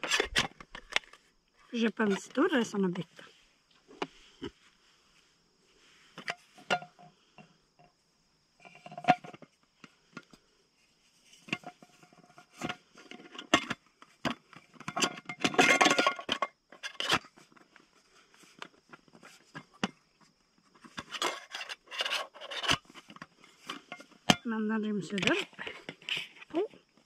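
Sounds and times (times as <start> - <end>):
scraping and rustling: 8.6 - 24.4
metal pot and lid clinking: 14.8 - 17.2.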